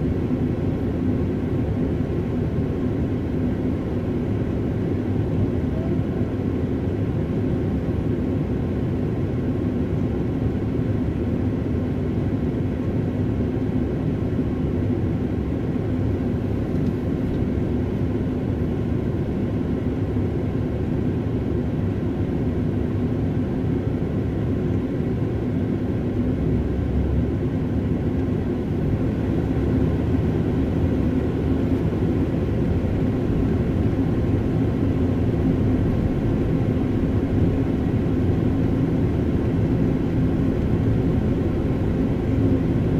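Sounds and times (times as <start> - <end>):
car engine idling inside cabin: 25.7 - 42.9.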